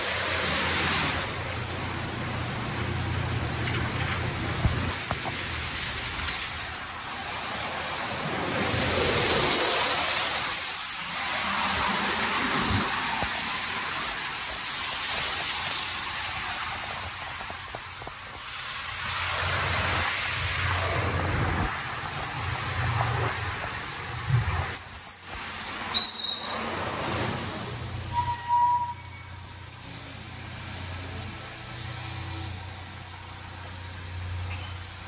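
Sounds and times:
water spraying and splashing: 0.0 - 35.0.

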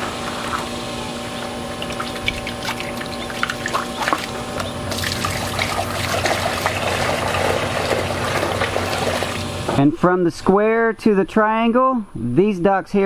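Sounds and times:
water pouring and splashing: 1.7 - 9.5.

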